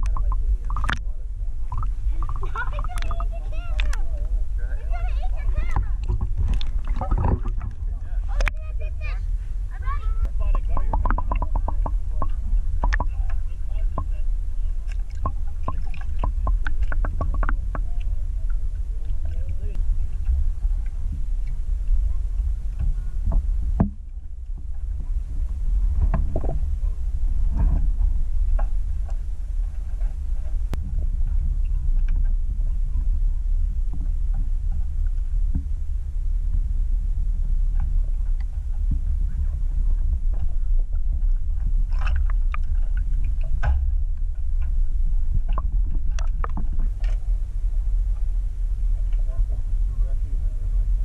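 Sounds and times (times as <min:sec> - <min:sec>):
faint voices: 0:00.0 - 0:35.1, 0:45.6 - 0:51.0
airboat engine rumbling: 0:00.0 - 0:51.0.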